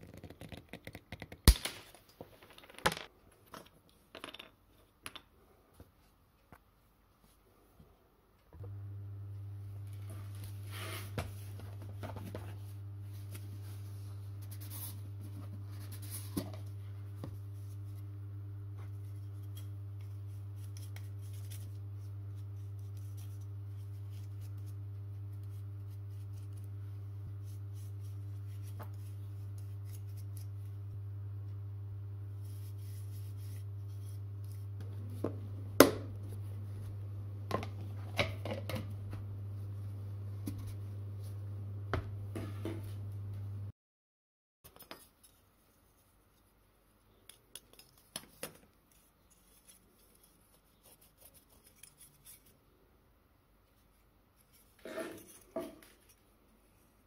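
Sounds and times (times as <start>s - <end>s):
low hum: 8.6s - 43.7s.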